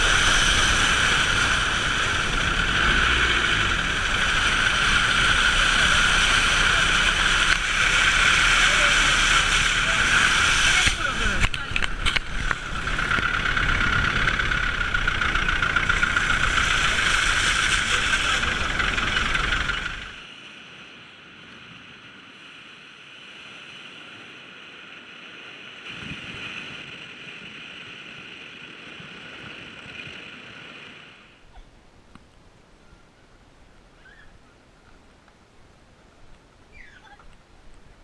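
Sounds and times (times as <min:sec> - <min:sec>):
steady drone: 0:00.0 - 0:20.2
vehicle engine and road noise: 0:00.0 - 0:38.0.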